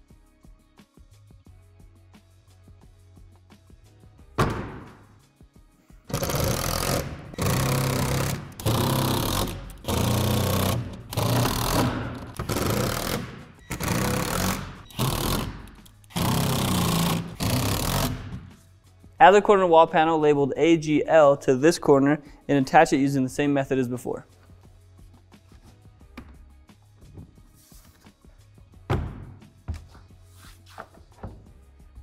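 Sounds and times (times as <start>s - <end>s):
panel knocking into place: 4.4s - 5.0s
power driver driving screws: 6.1s - 18.5s.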